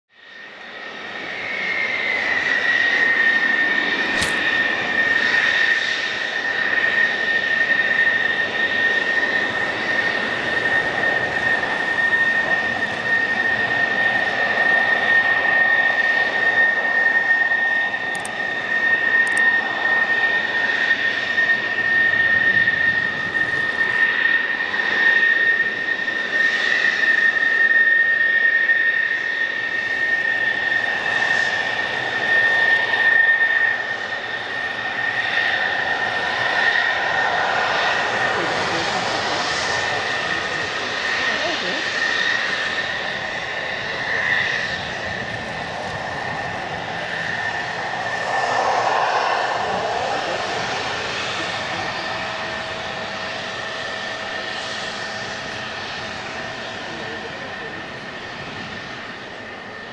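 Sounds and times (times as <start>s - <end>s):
jet engines whining and roaring: 0.1s - 59.9s
sharp click: 4.2s - 4.4s, 18.1s - 18.4s, 19.2s - 19.4s.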